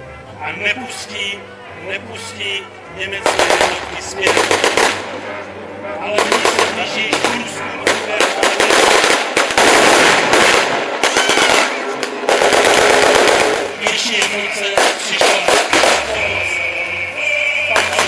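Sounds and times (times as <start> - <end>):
rapid blank gunfire: 3.2 - 5.0, 6.2 - 13.8, 14.8 - 16.1.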